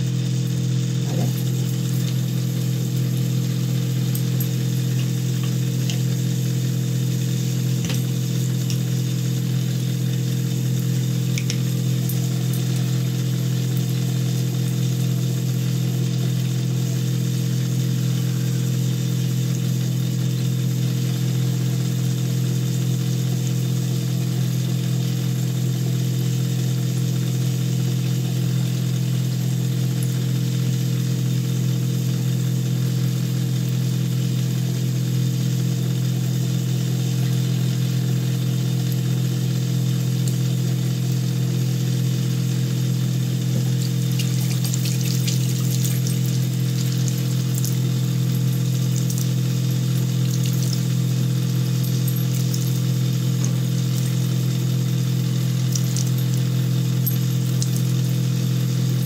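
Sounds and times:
motor humming: 0.0s - 16.2s, 37.2s - 59.0s.

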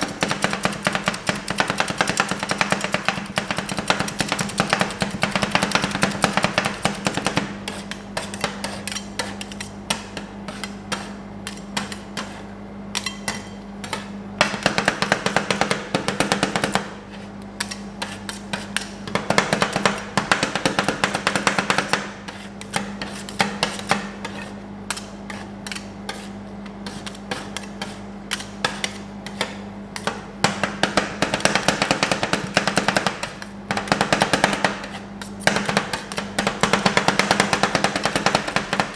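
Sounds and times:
metal spatulas chopping on steel plate: 0.0s - 16.9s, 17.6s - 38.9s
steady low hum: 0.0s - 38.9s.

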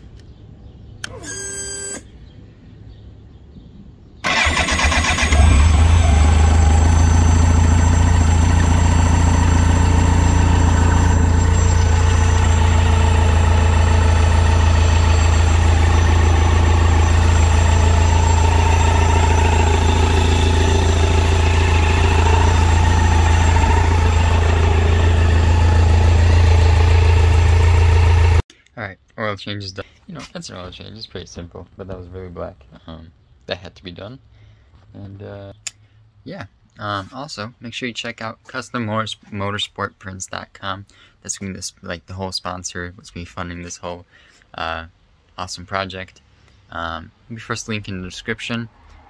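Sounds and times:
electric starter cranking: 4.2s - 28.4s
motorcycle engine idling: 4.3s - 28.4s
short whine: 5.3s - 28.4s.

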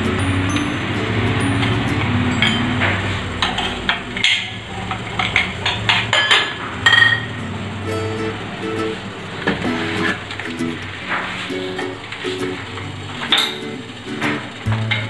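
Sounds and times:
metal steamer parts clinking: 1.6s - 7.4s, 11.1s - 15.0s.

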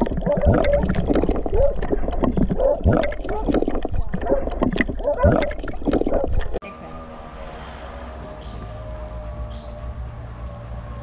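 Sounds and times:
underwater splashing and gurgling: 0.0s - 6.6s.

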